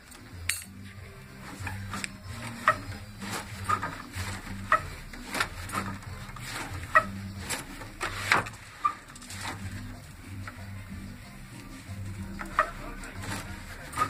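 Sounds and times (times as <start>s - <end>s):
wooden loom knocking and clacking: 1.6s - 9.8s.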